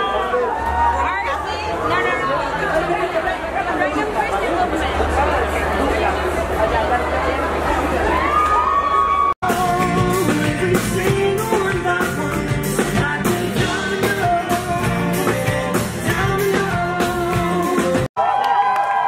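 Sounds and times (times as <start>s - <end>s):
keyboard: 9.4s - 18.1s
person singing: 9.4s - 18.1s
steady bass line: 9.4s - 18.1s.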